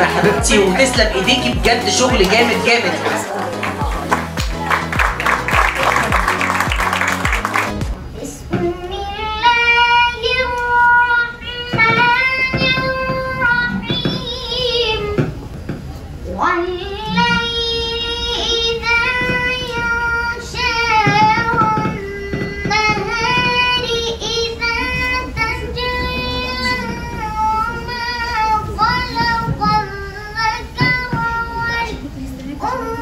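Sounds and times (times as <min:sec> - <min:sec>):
boy chanting: 0:00.0 - 0:04.1, 0:16.3 - 0:33.0.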